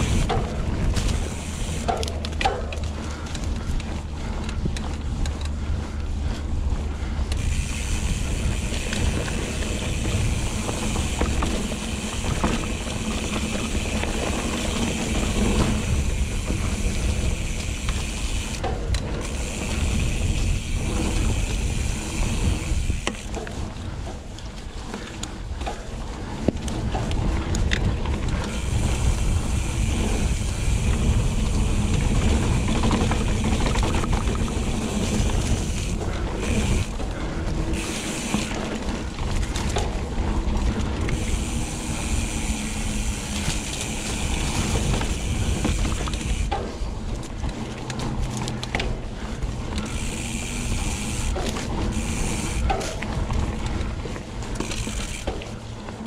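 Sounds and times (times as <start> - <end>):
wind on microphone: 0.0 - 1.8
bicycle freewheel buzzing: 0.0 - 24.1, 26.2 - 56.0.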